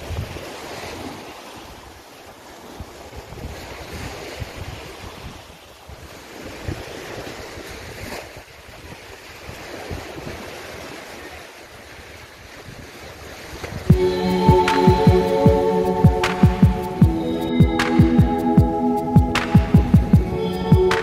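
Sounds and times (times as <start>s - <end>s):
wind rumbling on microphone: 0.0s - 1.8s, 2.5s - 11.0s
small waves washing on beach: 0.0s - 21.0s.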